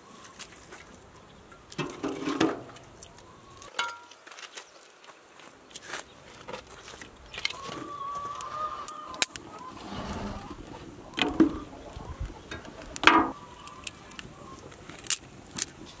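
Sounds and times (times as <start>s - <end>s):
fire crackling and snapping: 11.9s - 16.0s.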